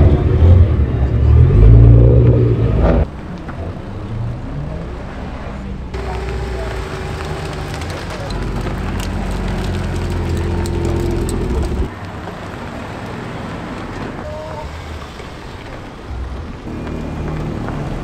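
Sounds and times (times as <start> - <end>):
car engine rolling out: 0.0 - 11.9
car engines pulling away: 0.0 - 18.0
outdoor noise: 0.0 - 18.0.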